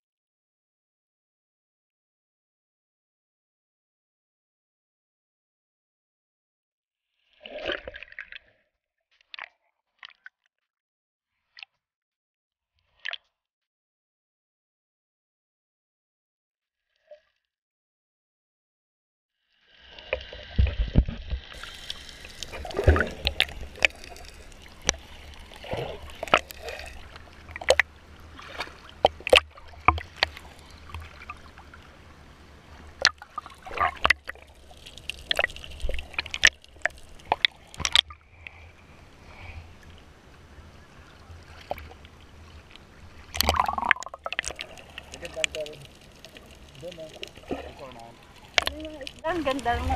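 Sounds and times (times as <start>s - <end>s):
sea water sloshing and gurgling: 7.2s - 8.6s, 19.7s - 49.9s
water splashes: 7.3s - 8.6s, 19.7s - 49.9s.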